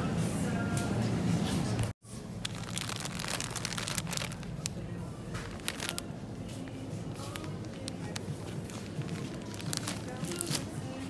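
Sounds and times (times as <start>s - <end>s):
plastic bag crinkling: 2.4s - 6.1s, 7.1s - 11.0s.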